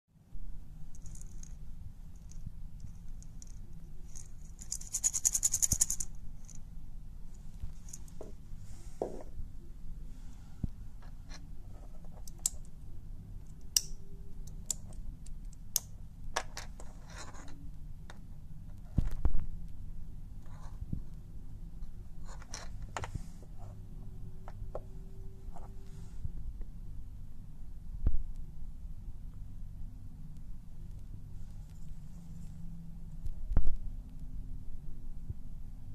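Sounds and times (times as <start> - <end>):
maraca rattling: 4.1 - 6.1.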